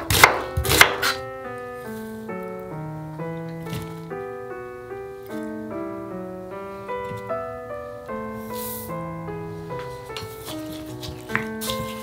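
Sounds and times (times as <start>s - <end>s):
piano melody: 0.0s - 12.0s.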